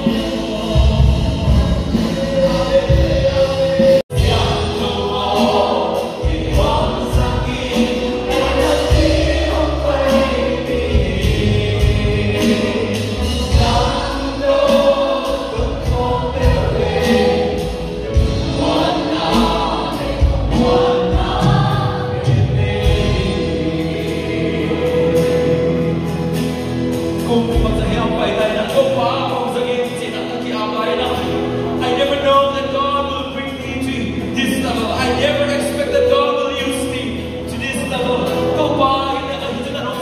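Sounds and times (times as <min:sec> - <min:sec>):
group singing worship song: 0:00.0 - 0:27.5
instrumental accompaniment with beat: 0:00.0 - 0:39.0.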